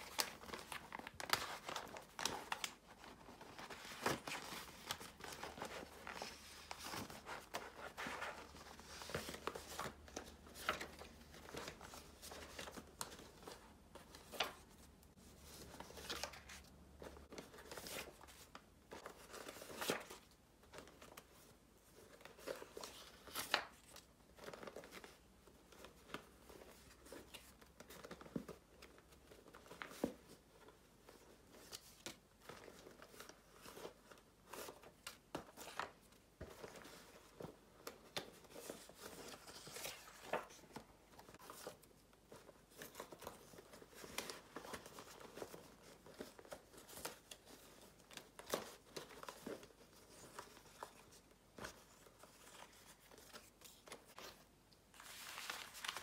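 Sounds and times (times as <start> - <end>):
paper rustling and sliding: 51.6 - 56.0.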